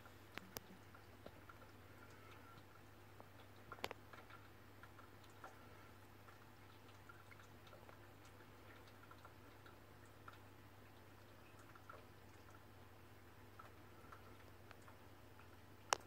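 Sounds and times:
aquarium equipment hum: 0:00.0 - 0:16.0
faint ticks: 0:00.3 - 0:12.6, 0:13.5 - 0:16.0.

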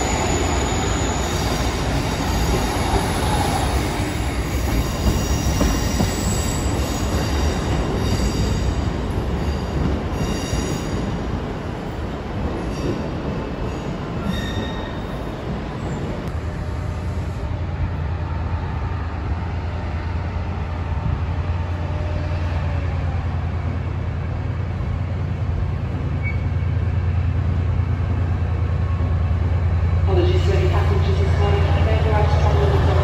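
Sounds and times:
train wheels squealing: 0:00.0 - 0:08.8, 0:13.7 - 0:15.2, 0:26.1 - 0:26.8
diesel locomotive engine drone: 0:10.9 - 0:33.0.

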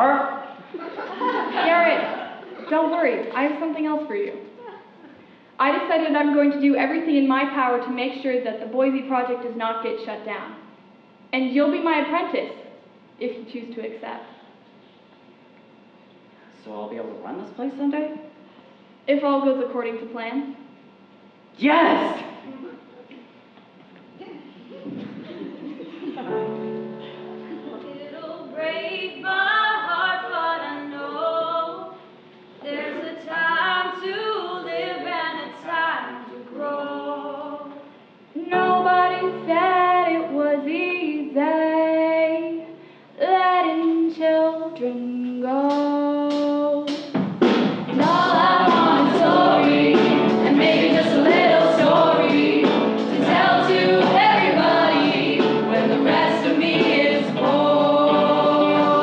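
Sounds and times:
instrumental accompaniment: 0:45.8 - 0:59.0
ensemble chorus singing: 0:47.9 - 0:59.0.

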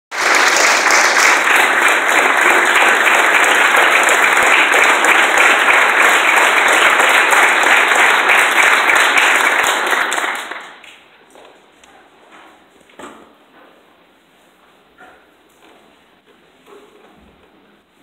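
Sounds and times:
audience applauding: 0:00.1 - 0:11.0.

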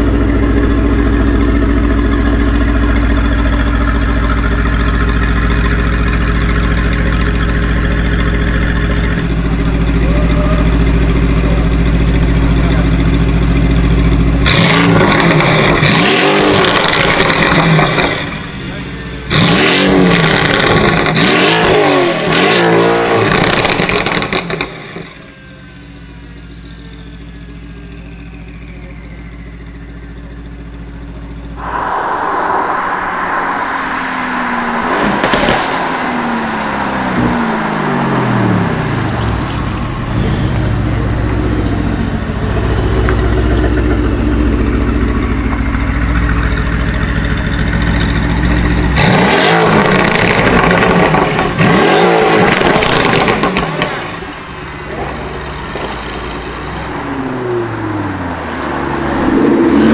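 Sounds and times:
car engine revving: 0:31.4 - 0:59.9
sharp exhaust crack: 0:31.5 - 0:46.5.

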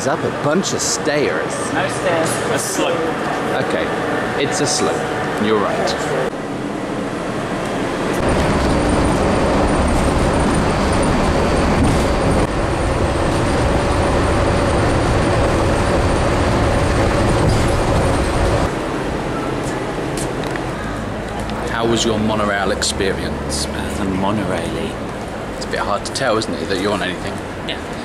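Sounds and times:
monorail rumbling and rushing: 0:00.0 - 0:28.0.

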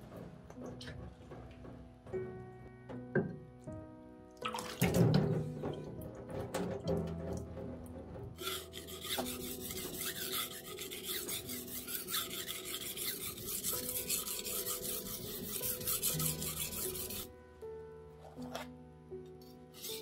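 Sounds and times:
knife scraping on whetstone: 0:08.4 - 0:17.3, 0:19.8 - 0:20.0.

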